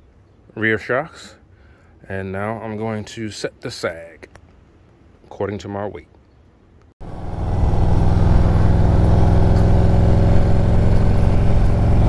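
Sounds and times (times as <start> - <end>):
motorcycle engine rumbling: 7.0 - 12.0.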